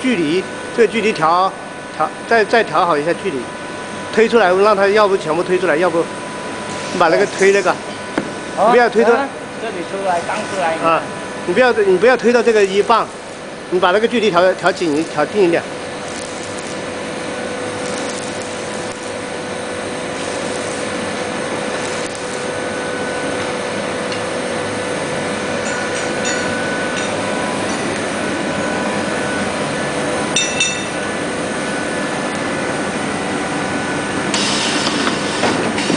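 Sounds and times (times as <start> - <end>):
induction furnace humming: 0.0 - 35.9.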